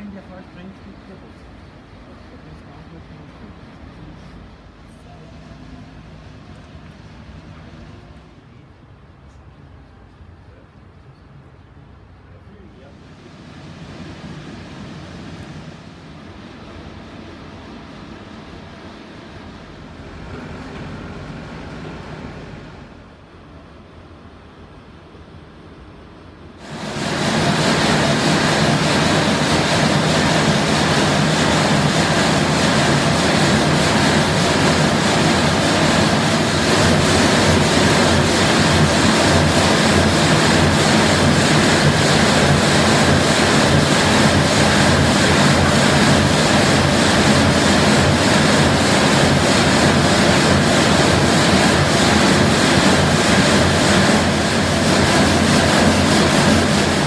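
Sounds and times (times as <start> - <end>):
large stone saw running: 26.6 - 57.0.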